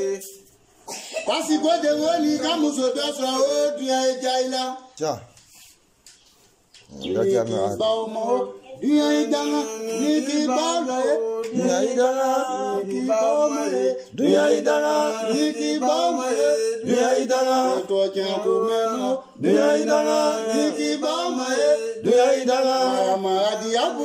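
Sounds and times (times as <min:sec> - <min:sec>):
person singing chant-like song: 0:06.9 - 0:24.0.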